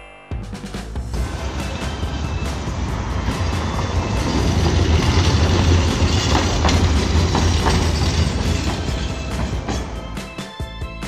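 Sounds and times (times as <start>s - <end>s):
tram rumbling: 1.1s - 10.5s
wheels clacking over rail joints: 1.2s - 10.5s.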